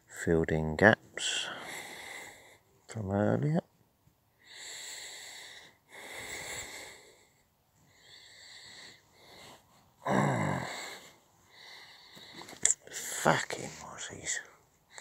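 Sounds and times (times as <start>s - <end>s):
noisy breathing close up: 1.2s - 2.8s, 4.3s - 13.0s, 13.8s - 15.0s
low voiced groan: 10.0s - 11.1s.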